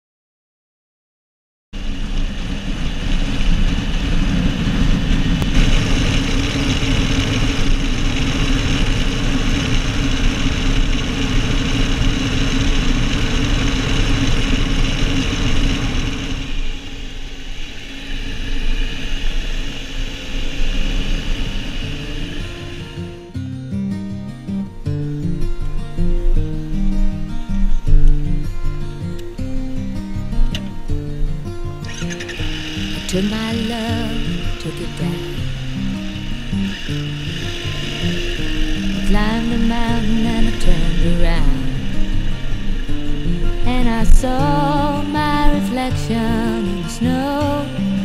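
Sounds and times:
motorcycle engine running: 1.8 - 23.3, 31.9 - 45.7
wind rushing past microphone: 1.8 - 23.3.

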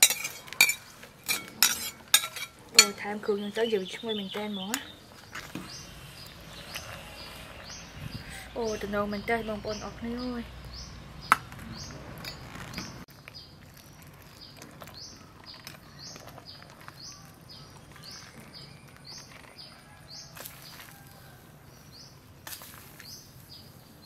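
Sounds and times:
ladle clinking on glass bowl: 0.0 - 3.1
bird chirping: 0.0 - 22.2.

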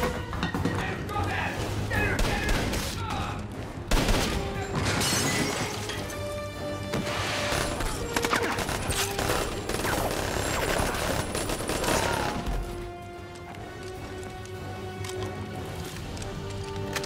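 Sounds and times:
film score music: 0.0 - 17.0
rapid gunfire: 3.9 - 4.4, 7.5 - 12.6.

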